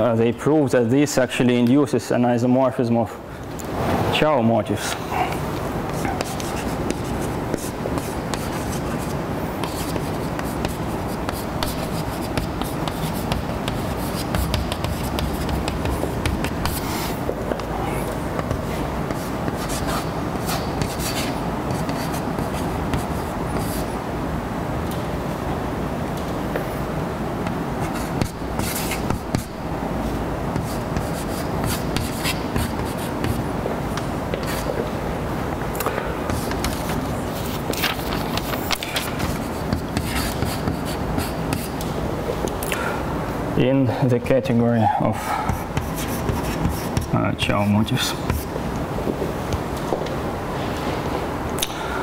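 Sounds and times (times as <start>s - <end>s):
low room hum: 0.0s - 52.0s
chalk tapping and scratching: 5.9s - 17.7s, 18.4s - 23.9s, 27.8s - 29.6s, 30.5s - 34.8s, 36.3s - 41.9s, 45.5s - 48.5s.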